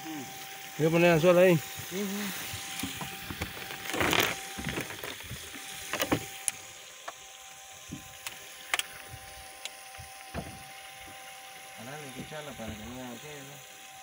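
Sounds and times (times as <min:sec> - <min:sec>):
water noise: 0:00.0 - 0:14.0
gear knocks and clicks: 0:02.6 - 0:06.6.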